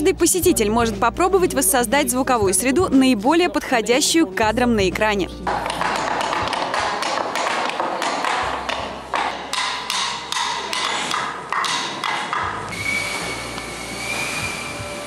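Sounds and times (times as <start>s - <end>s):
wooden knocks and clacks: 5.5s - 12.7s
wind machine hissing: 12.7s - 15.0s.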